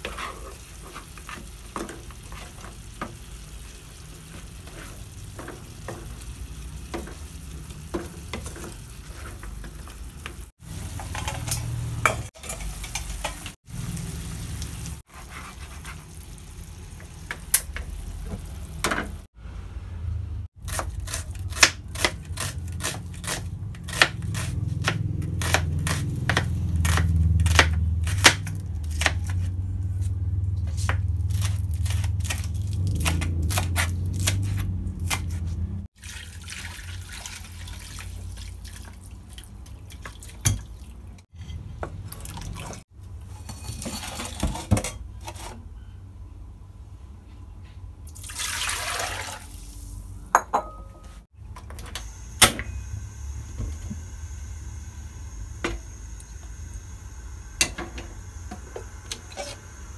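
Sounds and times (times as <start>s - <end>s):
knife chopping on cutting board: 20.7s - 29.2s
low hum: 51.4s - 59.9s.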